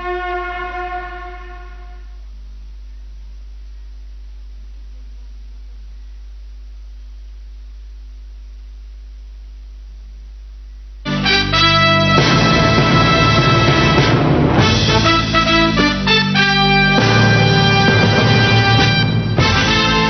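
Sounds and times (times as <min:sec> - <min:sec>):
music: 0:00.0 - 0:02.0, 0:11.1 - 0:20.0
low electrical hum: 0:00.0 - 0:20.0.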